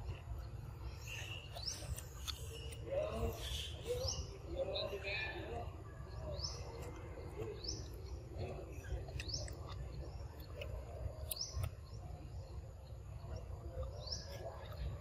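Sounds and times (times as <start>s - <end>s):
bird chirping: 0.0s - 15.0s.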